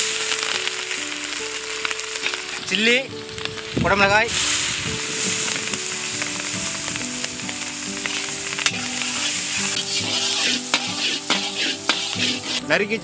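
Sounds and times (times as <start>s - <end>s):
vegetables sizzling in oil: 0.0s - 13.0s
utensil knocking against pan: 9.8s - 12.4s.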